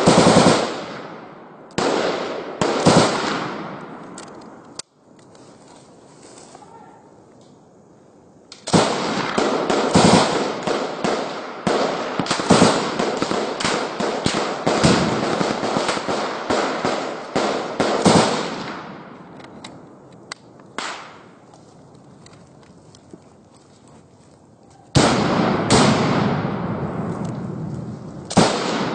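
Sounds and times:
rapid gunfire: 0.0 - 1.0, 8.7 - 18.7
single gunshots: 25.0 - 27.1, 28.3 - 28.9.

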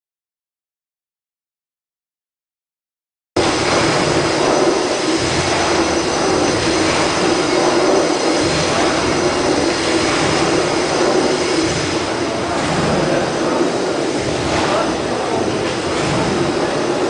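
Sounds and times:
steam engine machinery noise: 3.4 - 17.0.

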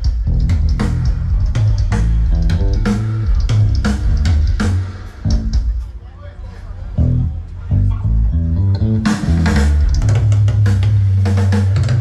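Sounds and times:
bass guitar: 0.0 - 5.8, 6.9 - 12.0
guitar: 0.0 - 5.9, 7.0 - 12.0.

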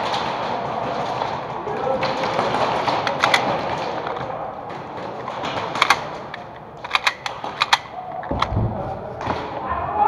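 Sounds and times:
steady background noise: 0.0 - 10.0
airsoft gun sharp cracks: 6.8 - 8.0.

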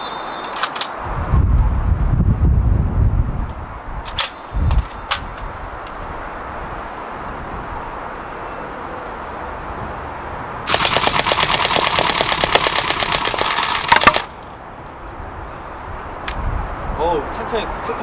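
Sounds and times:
airsoft gun full-auto burst: 10.7 - 14.4.

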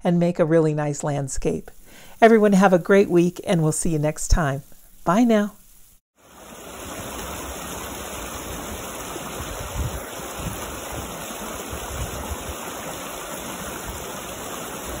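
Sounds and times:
creek rushing over stones: 6.2 - 15.0.

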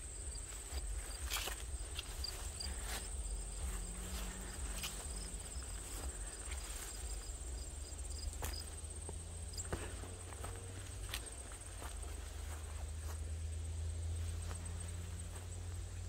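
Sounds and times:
low rumble: 0.0 - 11.5
footsteps on grass: 0.0 - 16.0
insect chirping: 0.0 - 16.0
insects trilling: 0.0 - 16.0.

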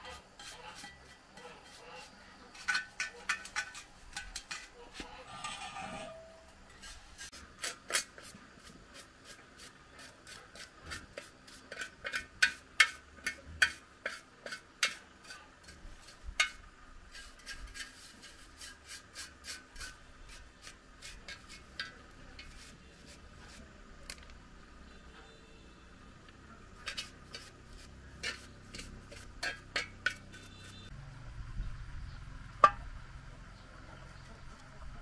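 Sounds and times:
metal tool scraping metal drum: 0.0 - 8.3, 10.3 - 23.7, 26.8 - 30.9.

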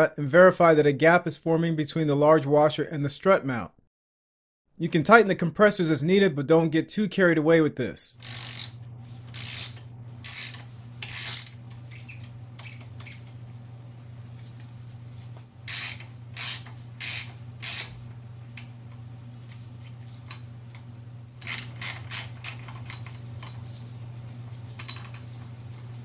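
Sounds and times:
steady low hum: 7.8 - 26.0
wrench scraping metal: 8.2 - 13.3, 15.7 - 18.0, 21.4 - 23.8.

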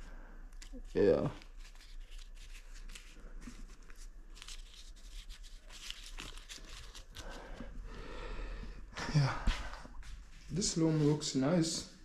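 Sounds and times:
paper banknotes rustling: 0.5 - 7.7.

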